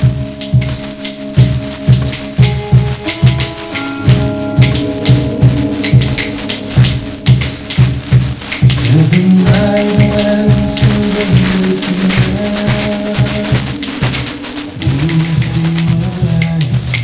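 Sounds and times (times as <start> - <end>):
upbeat music with pulsing bass: 0.0 - 17.0.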